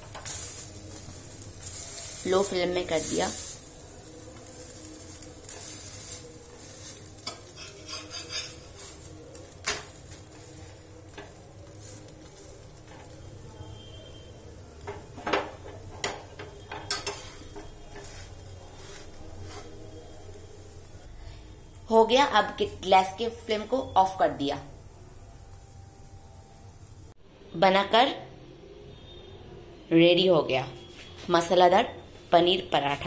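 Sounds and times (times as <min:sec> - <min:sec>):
paratha sizzling in oil: 0:00.0 - 0:27.2
metal spatula scraping a pan: 0:04.4 - 0:13.2, 0:14.8 - 0:20.2.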